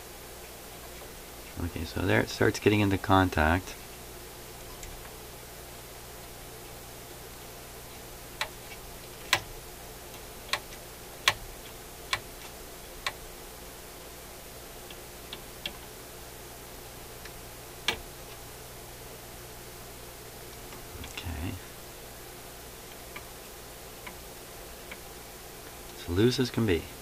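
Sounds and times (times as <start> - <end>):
turntable mechanism clicking: 7.9 - 13.3, 17.2 - 18.4, 22.8 - 23.4, 24.0 - 24.2.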